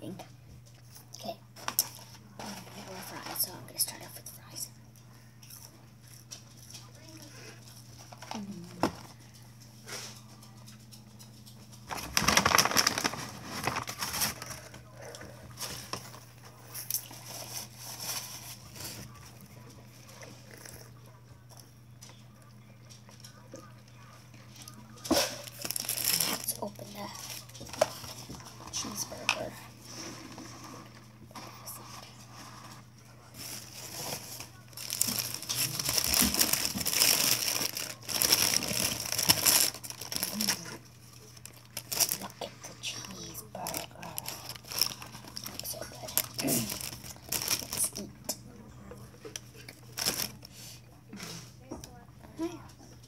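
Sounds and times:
paper bag rustling: 11.8 - 14.8, 17.1 - 19.0, 25.1 - 29.2, 29.8 - 42.4, 43.0 - 48.0, 49.8 - 50.5.

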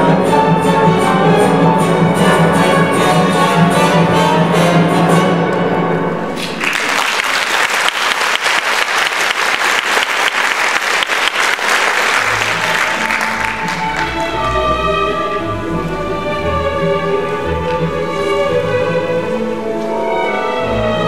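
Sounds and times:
orchestral music: 0.0 - 7.5, 10.6 - 21.0
audience applauding: 6.4 - 14.6.

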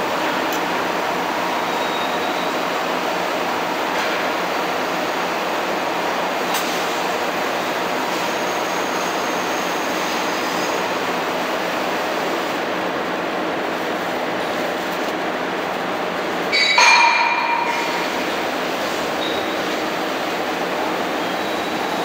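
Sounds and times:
paper machine running: 9.6 - 16.5.

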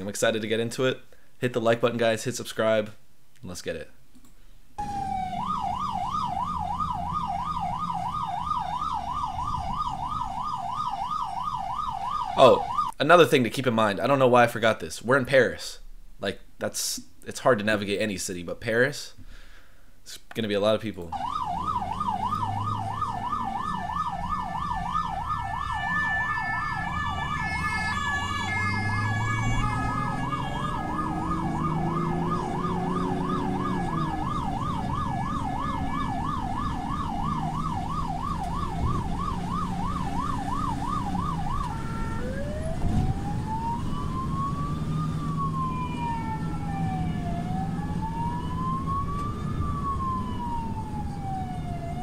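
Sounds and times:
ambulance engine humming: 4.8 - 12.9, 21.1 - 52.0
ambulance siren: 4.8 - 13.0, 21.1 - 52.0.

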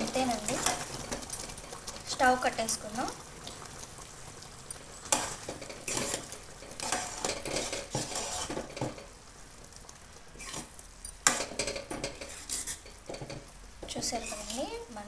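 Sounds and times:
ladle scraping metal pan: 5.1 - 9.0, 10.4 - 13.4, 14.1 - 14.6.

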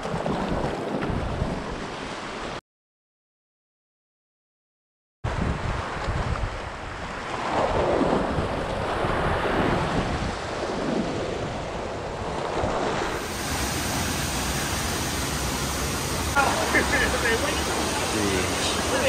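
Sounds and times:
wind buffeting microphone: 5.3 - 16.4
ocean surf over rocks: 5.3 - 19.0.

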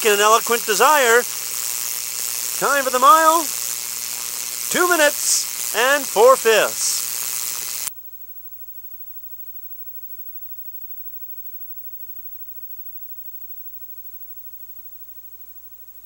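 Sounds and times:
loud hissing noise: 0.0 - 7.9
faint steady hiss: 0.0 - 16.0.

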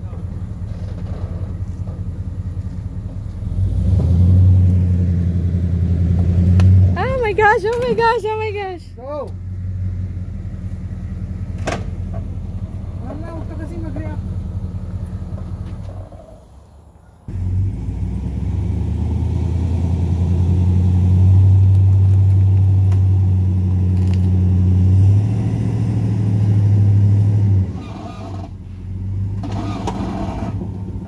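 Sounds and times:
truck engine revving hard: 3.4 - 7.6, 17.3 - 22.2, 22.8 - 31.0.

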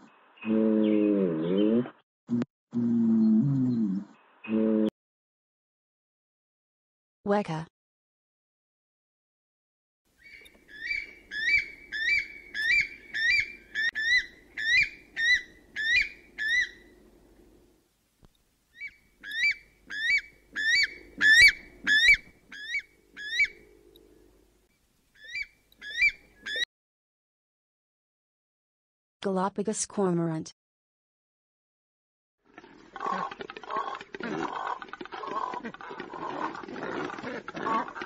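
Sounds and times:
shrill rising bird calls: 10.2 - 16.9, 18.8 - 23.7, 25.2 - 26.7.

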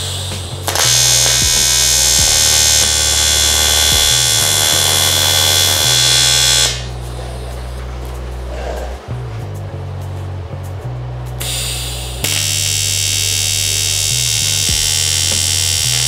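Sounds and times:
welding arc buzzing: 0.0 - 7.2, 11.4 - 16.0
background music: 0.0 - 16.0.

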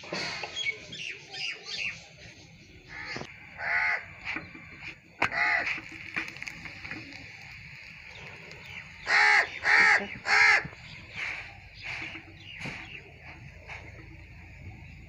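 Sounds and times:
crow cawing: 2.9 - 4.5, 5.2 - 5.9, 9.0 - 12.0.

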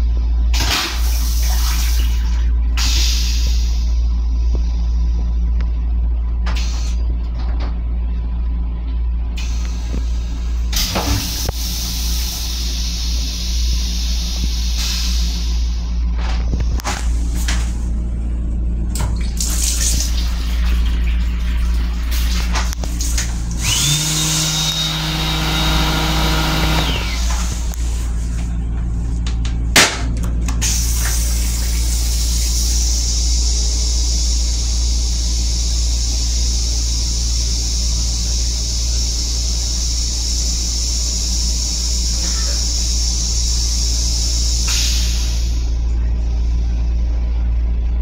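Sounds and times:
railcar low rumble: 0.0 - 23.9, 26.9 - 48.0
motor humming: 22.1 - 46.2.

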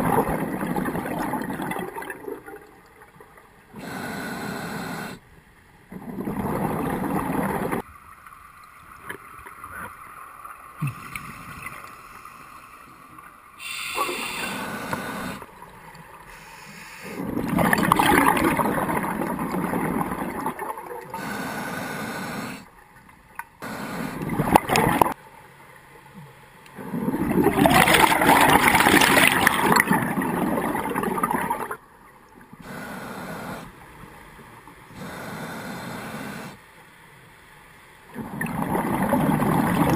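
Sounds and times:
regulator hissing inhalations: 3.8 - 5.2, 13.6 - 15.5, 16.3 - 17.2, 21.2 - 22.7, 32.6 - 33.8, 35.0 - 36.6
underwater exhale bubbling: 17.0 - 22.6, 26.8 - 31.8, 38.2 - 39.9.

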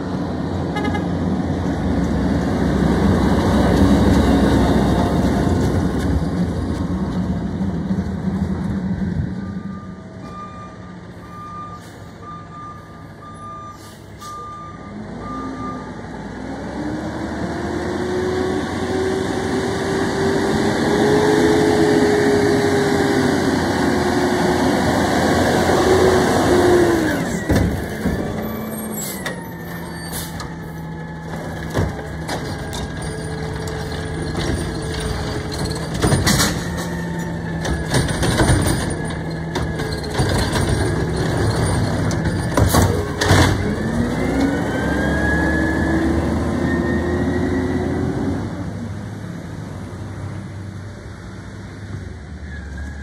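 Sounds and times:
distant backup beeper: 9.4 - 16.0
side-loader arm clanking: 25.2 - 44.9.

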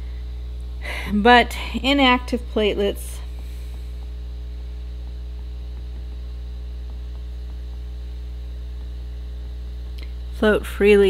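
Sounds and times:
electrical mains hum: 0.0 - 11.0.

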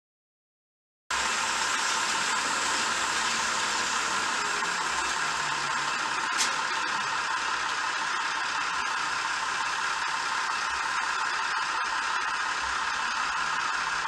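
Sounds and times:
model train motor whirring: 1.1 - 14.0.

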